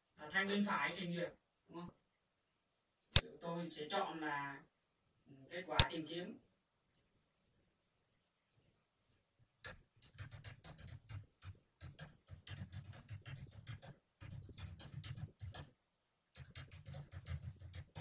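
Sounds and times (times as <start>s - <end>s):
typing on keyboard: 9.6s - 15.7s, 16.3s - 18.0s.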